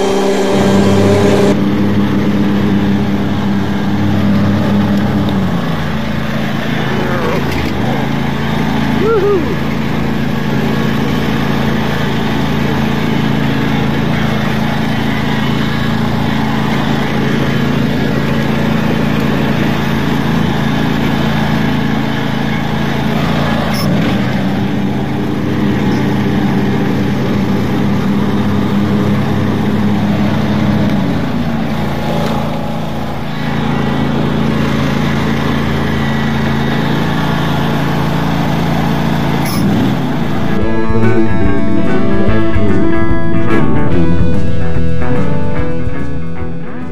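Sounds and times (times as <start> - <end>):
riding lawn mower engine running: 0.0 - 46.9.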